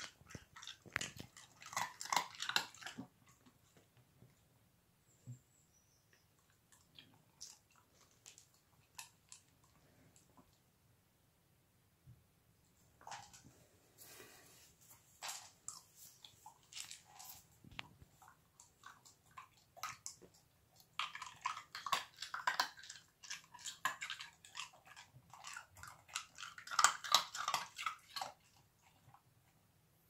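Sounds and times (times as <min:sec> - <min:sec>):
dog crunching ice cubes: 0:00.0 - 0:03.1, 0:18.7 - 0:28.6.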